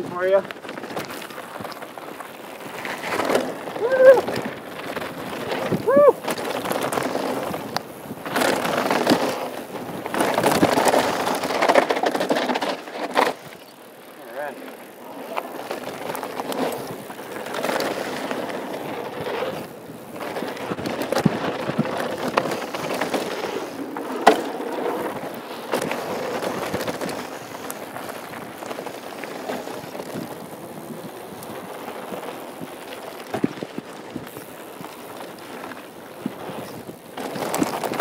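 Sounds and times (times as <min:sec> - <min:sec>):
bike rattling and knocking: 0:00.0 - 0:38.0
tyres crunching on gravel: 0:00.0 - 0:38.0.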